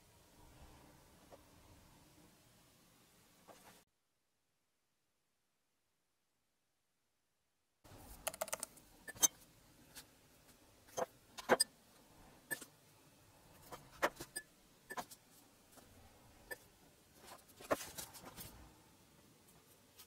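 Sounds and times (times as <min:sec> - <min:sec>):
faint room hiss: 0:00.0 - 0:03.9, 0:07.8 - 0:20.0
tools clicking and tapping: 0:08.2 - 0:09.4.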